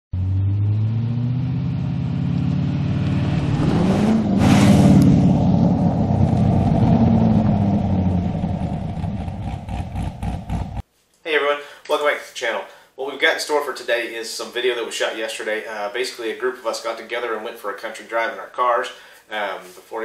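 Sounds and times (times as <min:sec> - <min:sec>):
car engine driving past: 0:00.1 - 0:10.8.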